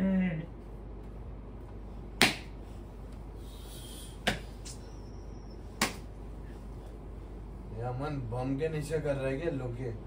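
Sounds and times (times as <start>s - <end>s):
open-hand slaps on body: 2.2s - 2.5s, 4.2s - 4.8s, 5.8s - 6.1s.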